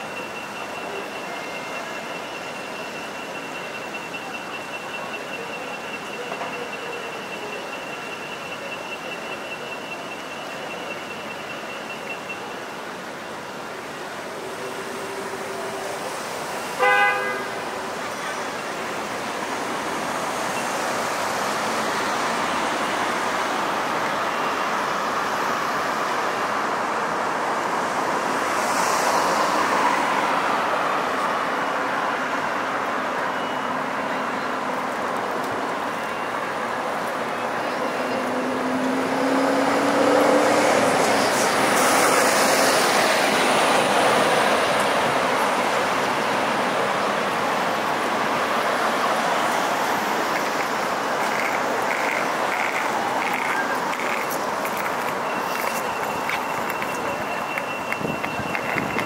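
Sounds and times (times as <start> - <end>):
city street traffic: 0.0 - 59.0
vehicle horn toot: 16.8 - 17.6.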